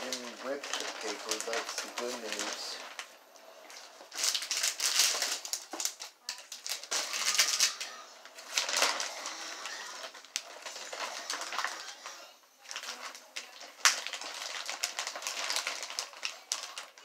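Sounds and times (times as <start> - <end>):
costume and packaging rustling: 0.0 - 17.0.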